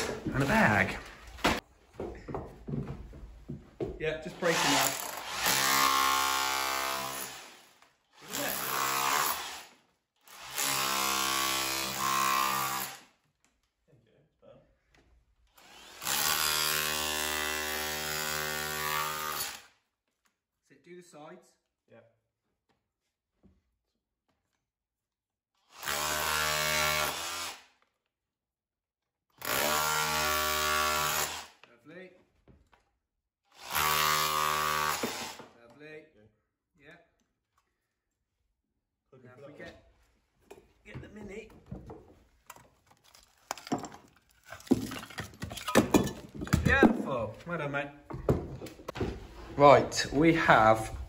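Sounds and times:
rotary hammer breaking brick: 42.5s - 47.0s.

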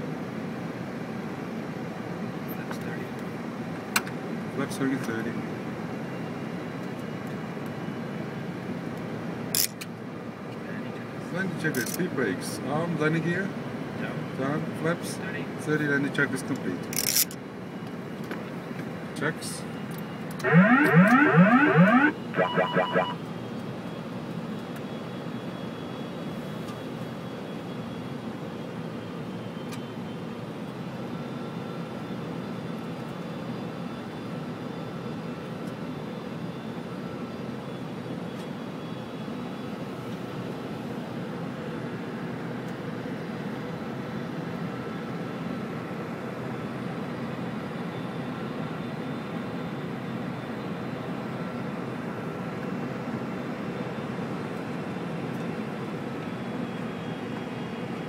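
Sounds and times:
airflow and engine rush: 17.4s - 58.0s
faint steady high tones: 20.4s - 23.2s.

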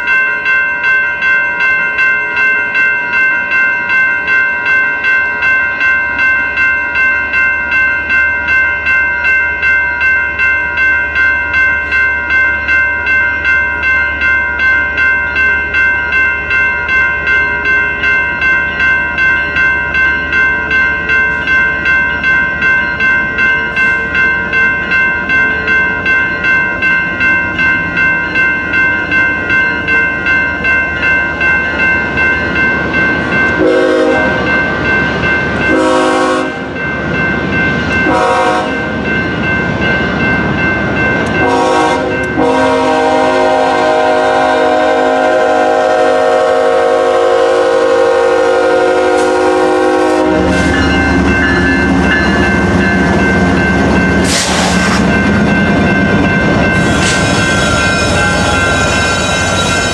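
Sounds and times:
crossing bell ringing: 0.0s - 59.9s
locomotive air horn blasts: 33.6s - 34.4s, 35.7s - 36.6s, 38.1s - 38.7s, 41.4s - 50.8s.

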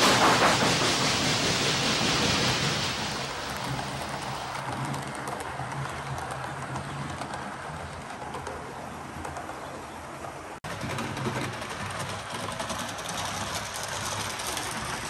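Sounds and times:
hiss: 0.0s - 4.6s
wheels clicking over rails: 0.0s - 15.0s.

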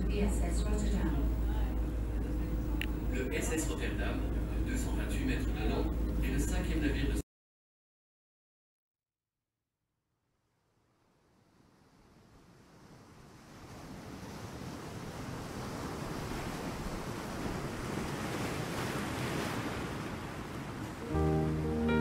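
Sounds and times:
rushing surf-like noise: 11.4s - 22.0s
music with sustained notes: 21.0s - 22.0s.

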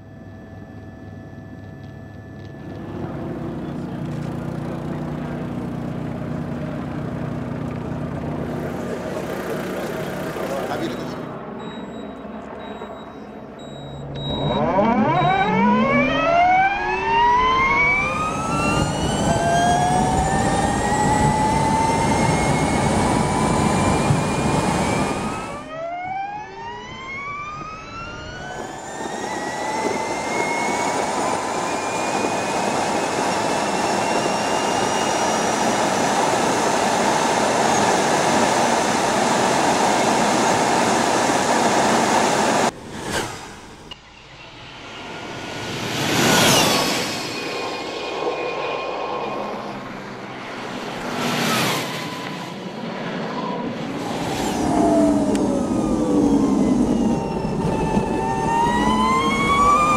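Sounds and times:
electric motorbike motor whine: 0.0s - 44.0s, 53.4s - 59.9s
wind and road noise: 1.7s - 59.9s.

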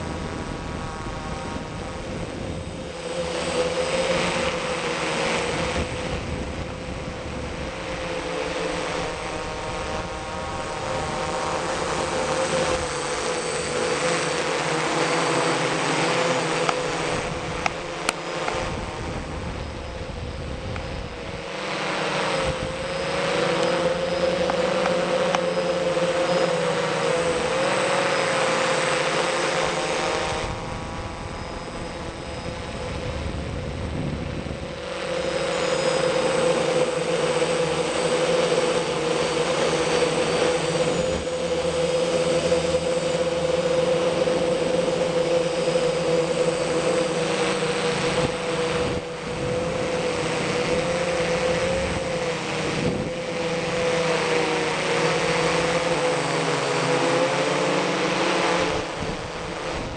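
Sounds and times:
rushing wind hiss: 0.0s - 26.0s, 29.3s - 38.3s, 47.2s - 55.2s, 58.6s - 59.9s
drone propellers whining: 0.0s - 59.9s.

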